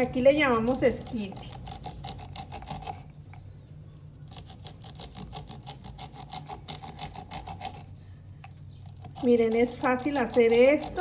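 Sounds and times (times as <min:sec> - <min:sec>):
knife rasping through corn kernels: 0:00.5 - 0:03.1, 0:04.3 - 0:08.0, 0:08.8 - 0:11.0.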